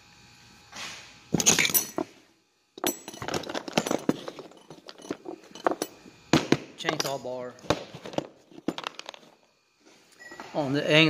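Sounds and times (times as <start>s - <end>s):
tools clattering: 1.3s - 2.2s, 2.8s - 9.4s
tools clinking and knocking: 1.4s - 2.1s, 2.8s - 9.4s.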